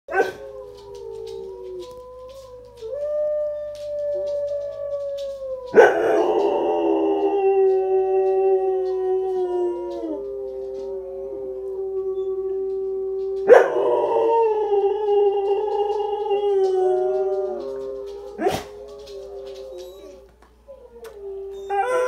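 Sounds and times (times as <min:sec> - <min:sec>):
dog howling: 0:00.1 - 0:22.0.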